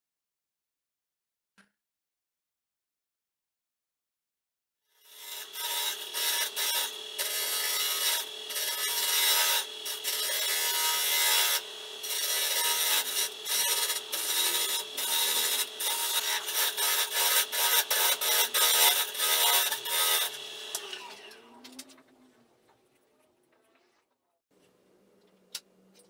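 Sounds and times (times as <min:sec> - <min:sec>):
lathe tool scraping wood: 0:05.0 - 0:21.6.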